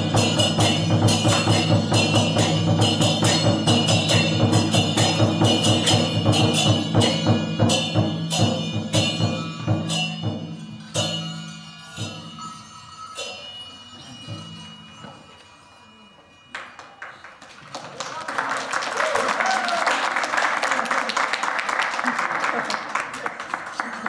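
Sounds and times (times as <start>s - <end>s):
drum beat: 0.0s - 11.4s
clashing cymbals: 0.0s - 16.5s.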